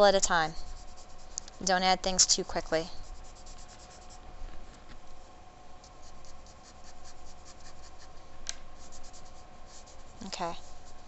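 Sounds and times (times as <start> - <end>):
pastel scratching on paper: 0.0 - 4.3, 5.8 - 8.2, 8.8 - 11.0
faint steady hum: 0.0 - 11.0.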